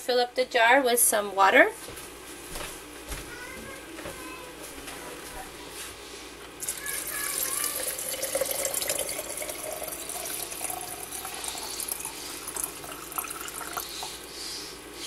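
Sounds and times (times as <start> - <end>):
water pouring into glass jar: 6.6 - 14.1.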